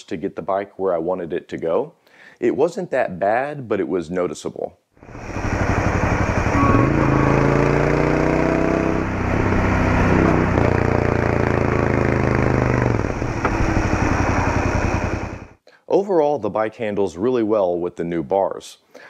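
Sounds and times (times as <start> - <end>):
motorcycle engine accelerating: 5.0 - 15.6.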